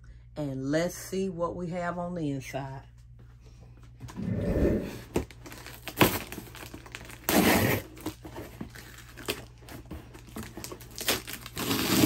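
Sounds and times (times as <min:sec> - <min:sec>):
tape and cardboard crinkling: 0:05.0 - 0:12.0
packing tape ripping off cardboard: 0:05.1 - 0:12.0.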